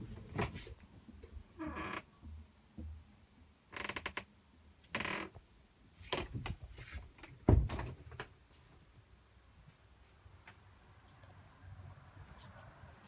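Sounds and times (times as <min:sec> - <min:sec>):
wooden cupboard door creak: 0:01.6 - 0:02.2, 0:03.7 - 0:04.3, 0:04.9 - 0:05.4, 0:07.3 - 0:08.3.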